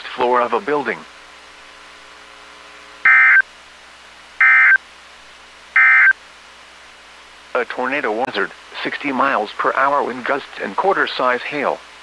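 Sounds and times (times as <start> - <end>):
faint radio hiss: 0.0 - 12.0
buzzy digital tone bursts: 3.0 - 3.4, 4.4 - 4.8, 5.8 - 6.1.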